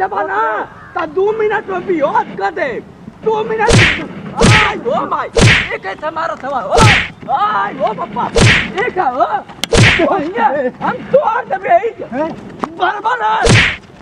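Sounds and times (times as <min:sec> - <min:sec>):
punch hits: 0:03.7 - 0:04.8, 0:05.4 - 0:05.8, 0:06.8 - 0:07.1, 0:08.4 - 0:08.8, 0:09.6 - 0:10.1, 0:13.4 - 0:13.8.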